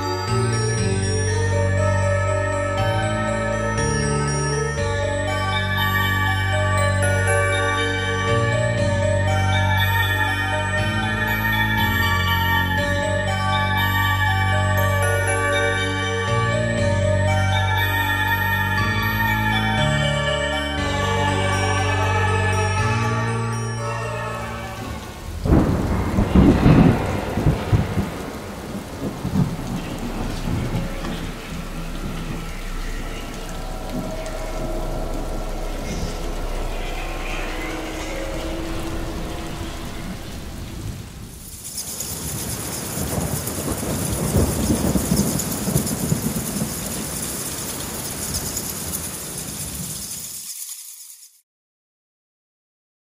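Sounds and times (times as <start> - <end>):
music: 0.0 - 28.3, 29.1 - 41.1
steady rain falling: 0.0 - 51.0
thunder crack and rumble: 24.8 - 50.0.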